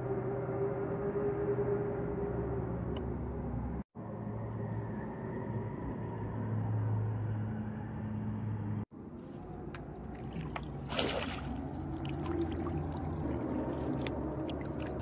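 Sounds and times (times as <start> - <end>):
water trickling and dripping: 9.7 - 15.0
water splash: 10.0 - 15.0.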